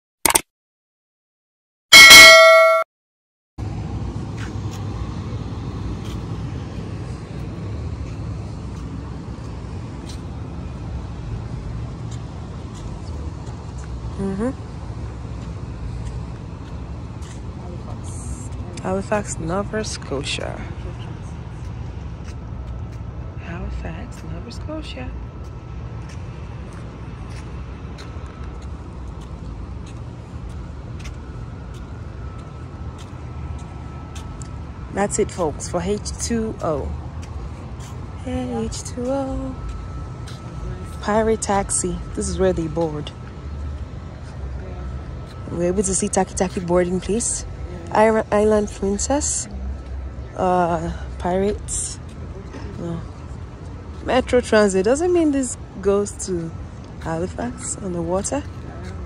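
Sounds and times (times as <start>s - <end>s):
steady low rumble: 3.6s - 59.0s
footsteps on pavement: 4.2s - 11.3s, 15.2s - 23.3s, 23.9s - 35.5s, 36.1s - 41.8s, 49.6s - 54.1s, 56.4s - 59.0s.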